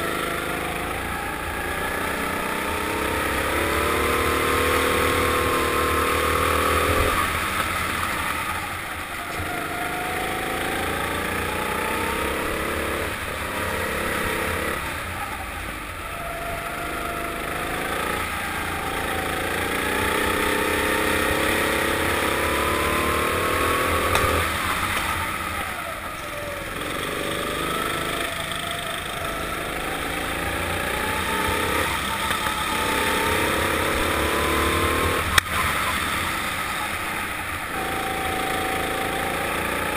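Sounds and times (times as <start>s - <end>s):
kart engine accelerating: 0.0s - 39.9s.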